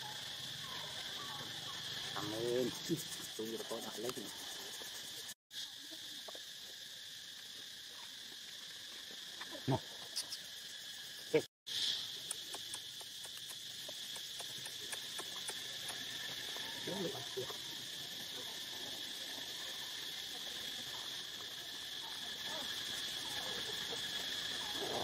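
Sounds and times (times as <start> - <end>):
insects trilling: 0.0 - 25.0.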